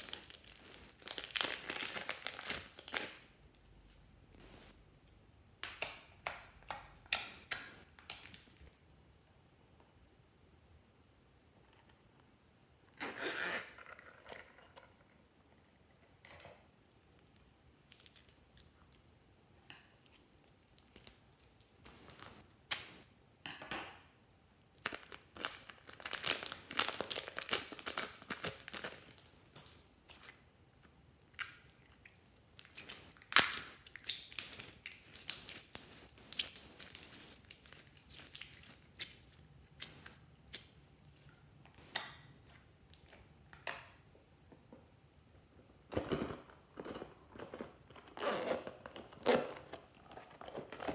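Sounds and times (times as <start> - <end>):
plastic bag crinkling: 0.0 - 3.2, 24.8 - 29.3
slime squelching: 31.2 - 43.3.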